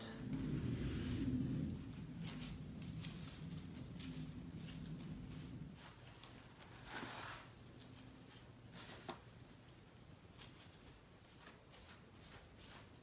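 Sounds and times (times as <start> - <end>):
cloth rubbing on wood: 0.2 - 9.2.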